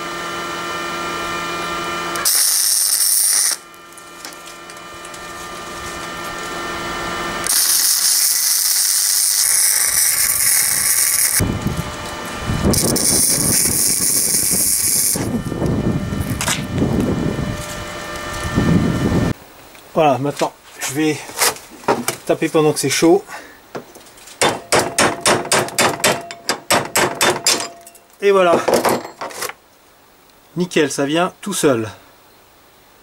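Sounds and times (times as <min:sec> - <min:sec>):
steady hum: 0:00.0 - 0:19.6, 0:23.6 - 0:29.3
welder arc crackling and hissing: 0:02.1 - 0:21.2.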